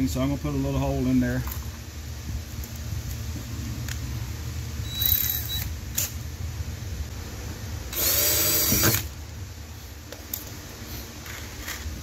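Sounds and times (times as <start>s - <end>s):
cordless drill boring: 7.9s - 9.1s.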